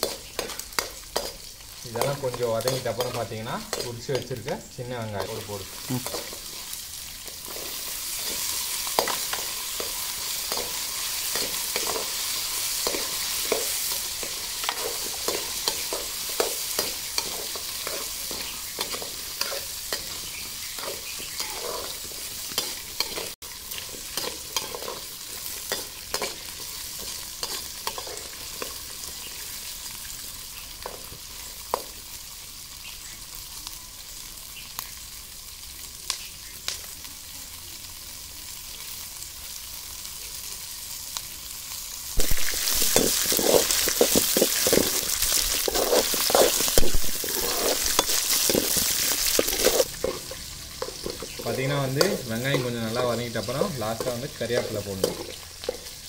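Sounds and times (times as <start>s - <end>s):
onions sizzling in hot oil: 0.0s - 56.0s
ladle scraping and knocking pan: 42.2s - 51.4s.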